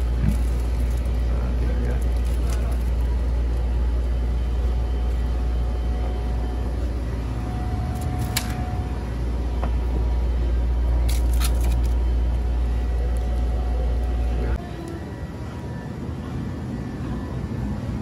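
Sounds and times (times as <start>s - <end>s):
plastic packaging crackling: 0.0s - 3.2s
steady low rumble: 0.0s - 18.0s.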